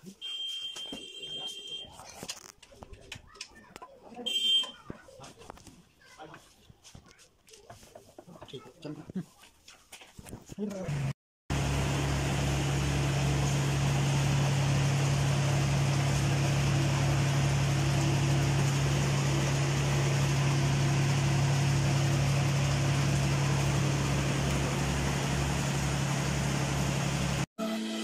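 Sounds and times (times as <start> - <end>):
electric motor humming: 11.5 - 27.5.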